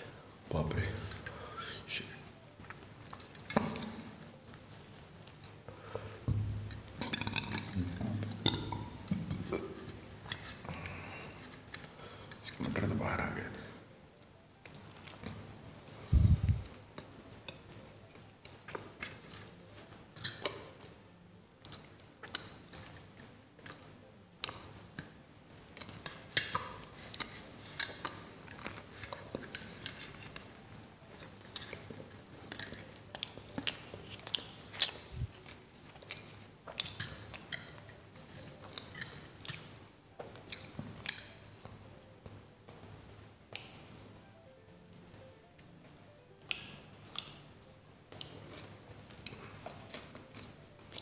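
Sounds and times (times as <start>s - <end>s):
chewing with wet mouth clicks: 21.6s - 41.8s, 46.5s - 47.4s.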